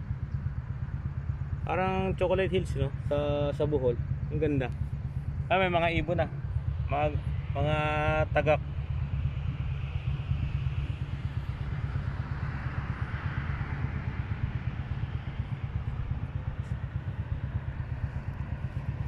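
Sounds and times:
road traffic hiss: 0:06.4 - 0:19.0.

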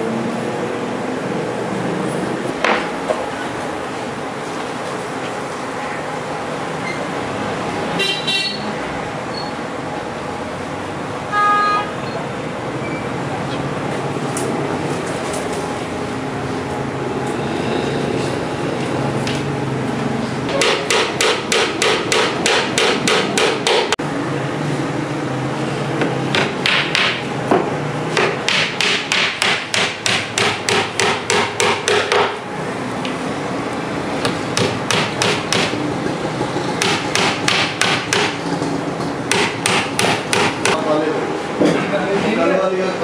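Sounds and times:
hammer tapping on wood: 0:26.3 - 0:32.4, 0:36.8 - 0:38.4.

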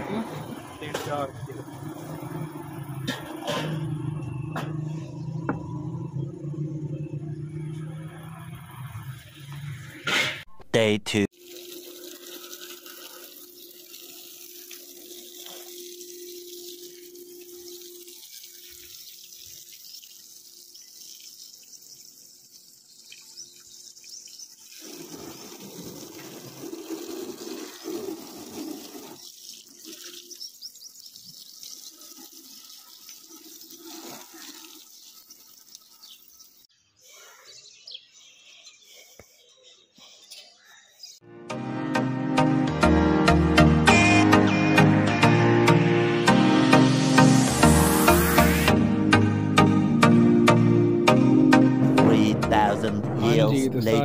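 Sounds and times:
hose water spraying on car: 0:00.0 - 0:10.2, 0:11.3 - 0:36.7, 0:46.6 - 0:48.8
water splashing onto grass: 0:11.4 - 0:36.4.

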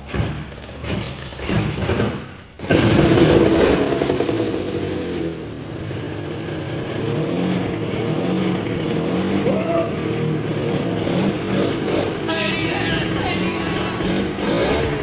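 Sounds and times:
motorcycle engine revving: 0:00.1 - 0:09.5, 0:10.1 - 0:15.0.

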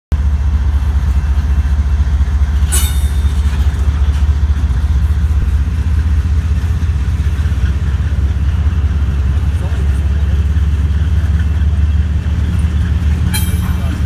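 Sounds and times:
freight train wheels rumbling: 0:00.1 - 0:14.0
metallic clank: 0:02.6 - 0:05.6, 0:13.2 - 0:14.0.

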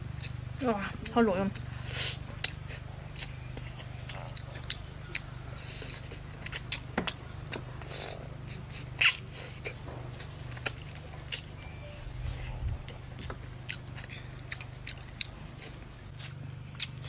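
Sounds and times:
chewing and lip-smacking: 0:00.1 - 0:17.0.

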